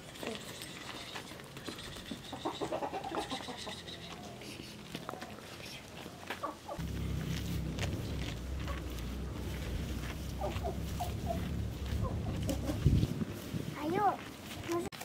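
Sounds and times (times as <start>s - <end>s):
chickens clucking: 0.2s - 13.3s
steady low rumble: 6.8s - 14.4s.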